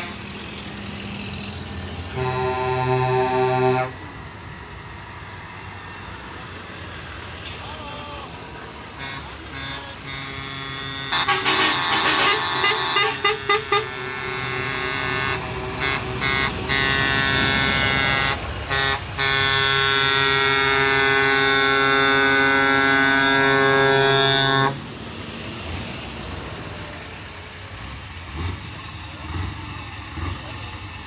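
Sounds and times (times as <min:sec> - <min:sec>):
truck air horns blowing: 0:00.0 - 0:00.3, 0:02.1 - 0:04.1, 0:08.9 - 0:24.8
truck engines running: 0:00.0 - 0:31.0.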